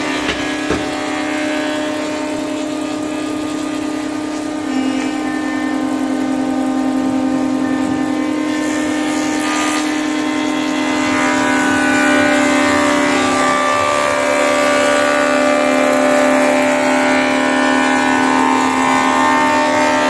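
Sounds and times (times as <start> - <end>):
jointer planer humming: 0.0 - 20.0
cutterhead shaving wood: 4.6 - 20.0.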